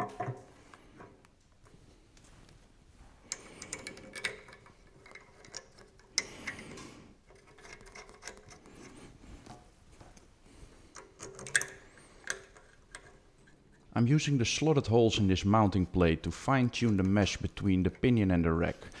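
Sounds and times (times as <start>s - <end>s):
metallic clicks and clinks: 3.3s - 8.7s, 10.9s - 13.9s.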